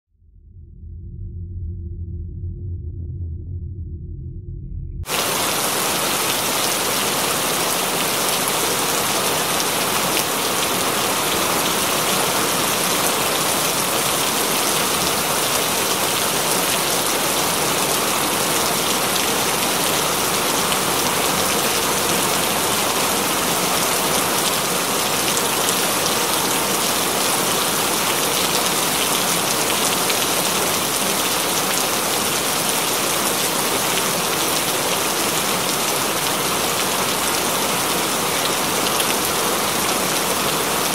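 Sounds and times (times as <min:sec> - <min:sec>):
rain on window glass: 0:05.1 - 0:40.9.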